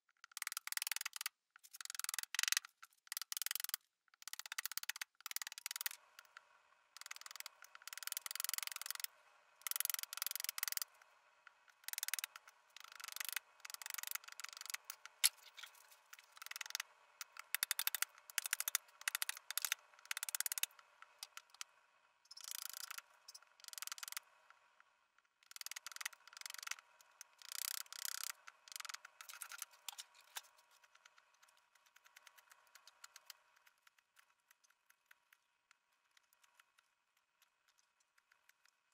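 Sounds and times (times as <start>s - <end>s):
faint ticks: 22.3s - 38.9s.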